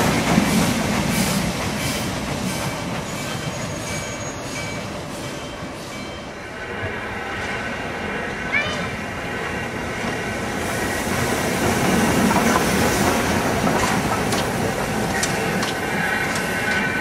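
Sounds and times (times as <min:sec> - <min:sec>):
train running on track: 0:00.0 - 0:17.0
wheel clicks over rail joints: 0:13.6 - 0:17.0.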